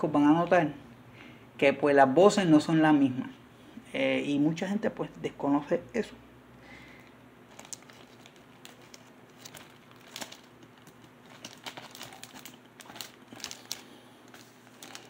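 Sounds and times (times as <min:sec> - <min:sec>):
plastic sleeve crinkling: 0:07.0 - 0:15.0.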